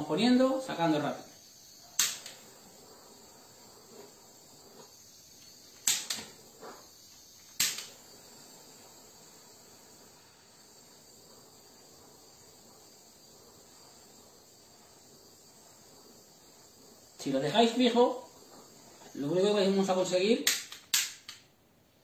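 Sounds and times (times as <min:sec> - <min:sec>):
faint high-pitched hiss: 0:00.0 - 0:22.0
blowtorch igniter clicks: 0:01.4 - 0:02.8, 0:04.0 - 0:08.3, 0:20.4 - 0:21.6.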